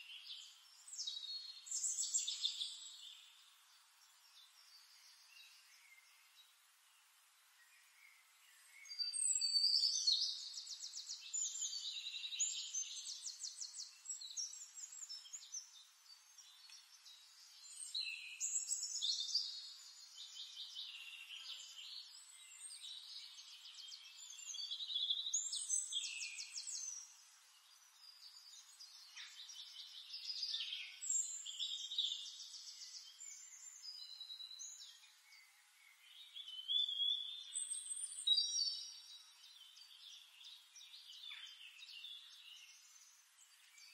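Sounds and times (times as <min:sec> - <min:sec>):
songbird trilling and chirping: 0:00.0 - 0:06.3, 0:08.0 - 0:43.9.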